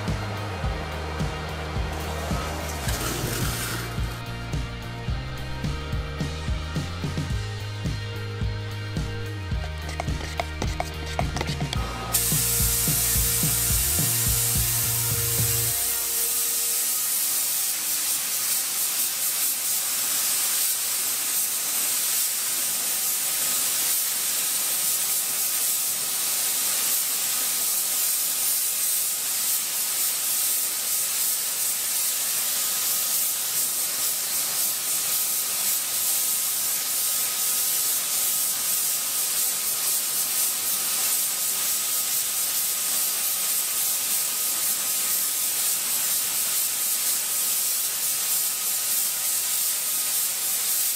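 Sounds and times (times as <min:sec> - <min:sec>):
spray gun hissing: 0:01.9 - 0:50.9.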